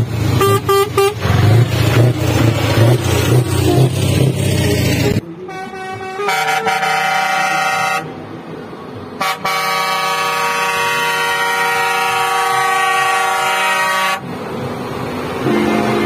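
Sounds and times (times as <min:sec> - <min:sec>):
truck engine running: 0:00.0 - 0:05.2
truck air horn blasts: 0:00.4 - 0:01.3, 0:05.4 - 0:08.2, 0:09.2 - 0:14.3, 0:15.4 - 0:16.0.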